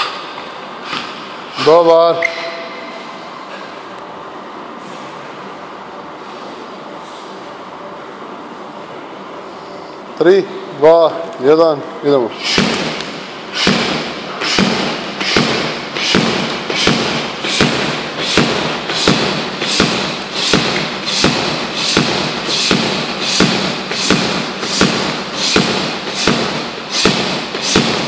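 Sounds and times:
medicine ball thudding on floor: 13.7 - 28.0.

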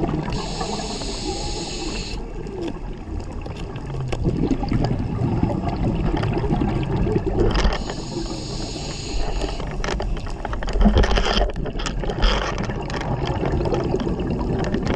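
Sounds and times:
low underwater rumble: 0.0 - 14.9
scuba regulator breathing hiss: 0.3 - 2.4, 7.8 - 9.8
bubbling bursts: 3.7 - 9.6, 12.0 - 14.9.

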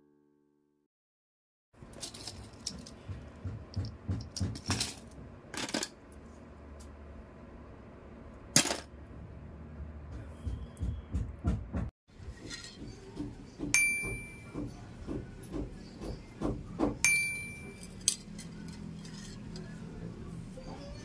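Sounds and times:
metal sticks clicking and clattering: 1.9 - 3.0, 17.2 - 19.7
low steady hum: 17.0 - 21.0.

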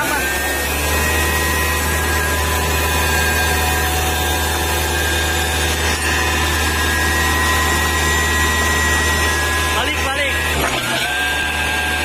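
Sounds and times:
forklift engine droning: 0.0 - 12.0
hydraulic whine: 0.0 - 12.0.

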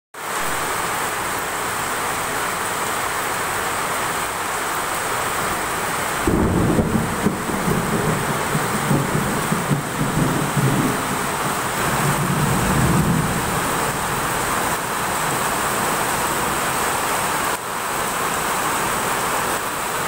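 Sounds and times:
heavy rain on pavement: 0.2 - 20.0
deep uneven rumble: 6.3 - 15.5.

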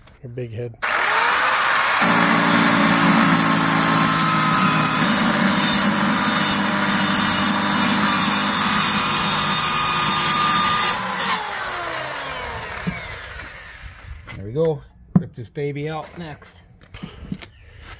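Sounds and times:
saw winding down whine: 0.8 - 14.2
power saw cutting wood: 0.8 - 14.3.

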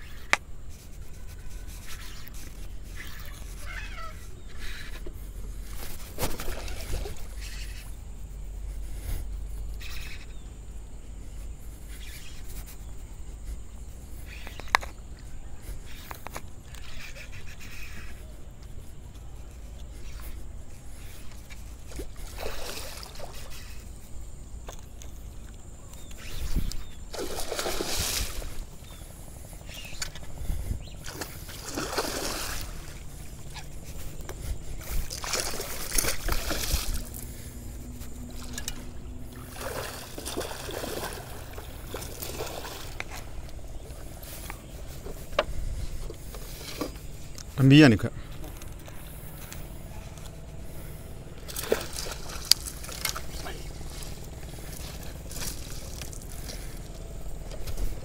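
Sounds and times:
steady low rumble: 0.4 - 16.9, 17.6 - 58.0
water sloshing and splashing: 2.9 - 8.0, 21.1 - 24.0, 26.0 - 47.6, 50.7 - 58.0.

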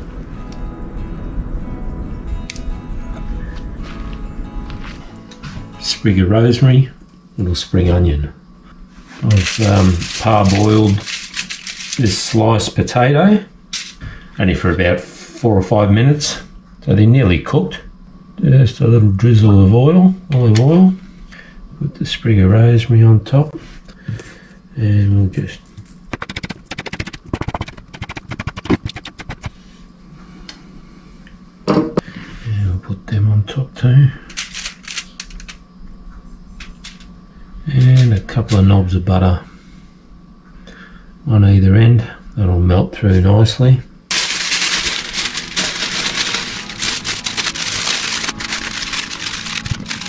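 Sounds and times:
aluminium foil crinkling: 9.2 - 12.4, 25.7 - 29.6, 34.4 - 35.5, 44.1 - 50.0.

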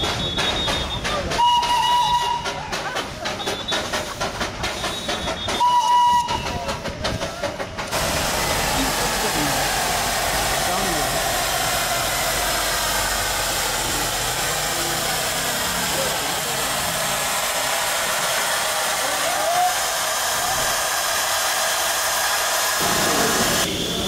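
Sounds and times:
steam hissing: 0.0 - 24.0.

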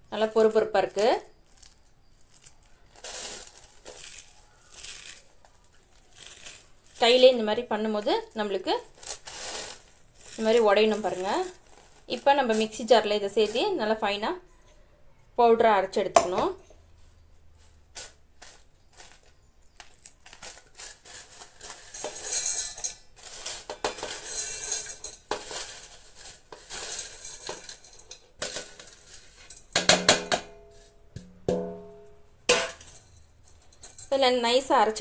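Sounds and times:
dry flakes scraping off steel plate: 2.9 - 7.3, 8.8 - 14.0, 17.6 - 29.7.

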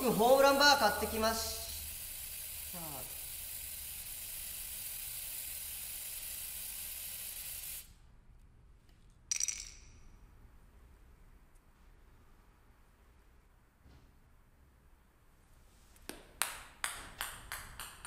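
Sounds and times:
spray paint can hissing: 0.0 - 8.0.

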